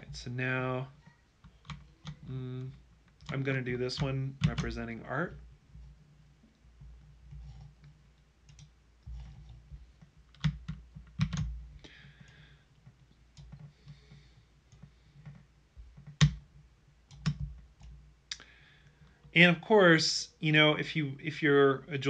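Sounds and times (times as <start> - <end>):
faint low hum: 0.0 - 22.0
computer mouse and keyboard clicks: 7.3 - 11.5, 17.1 - 18.0.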